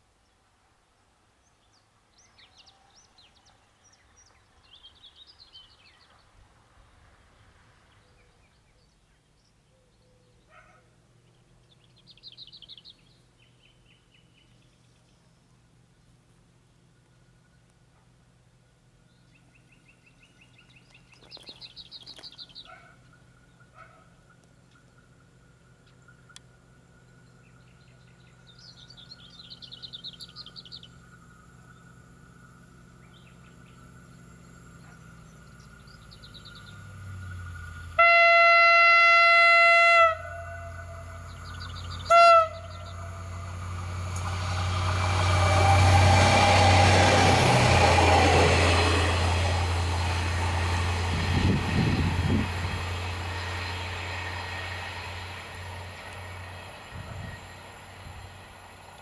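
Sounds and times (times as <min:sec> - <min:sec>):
train engine and wheels passing: 0:00.0 - 0:09.0, 0:11.0 - 0:59.0
bird singing: 0:00.1 - 0:06.4, 0:07.9 - 0:17.8, 0:18.6 - 0:59.0
train horn blasts: 0:37.8 - 0:48.4.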